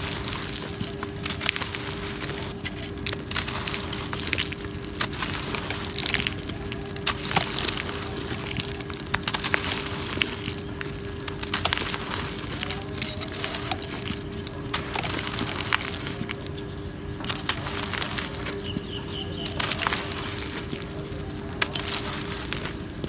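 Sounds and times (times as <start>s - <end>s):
cement chunks crunching: 0.0s - 23.0s.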